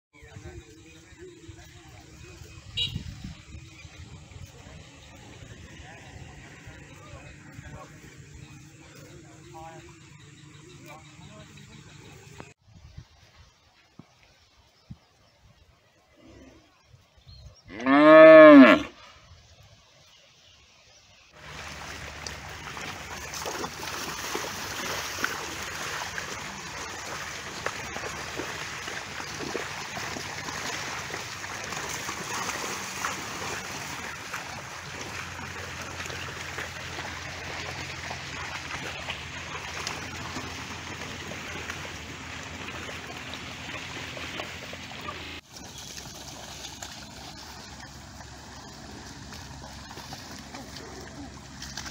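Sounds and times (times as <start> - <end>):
water buffalo mooing: 17.7 - 19.0.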